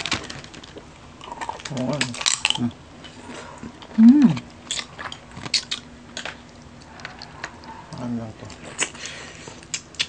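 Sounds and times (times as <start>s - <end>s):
chewing: 0.6s - 10.0s
crab shell cracking: 3.8s - 10.0s
person humming: 4.0s - 4.4s.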